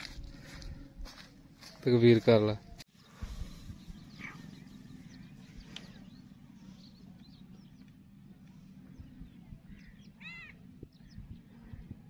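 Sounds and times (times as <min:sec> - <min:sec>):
low steady hum: 0:00.0 - 0:12.0
bird chirps: 0:02.9 - 0:12.0.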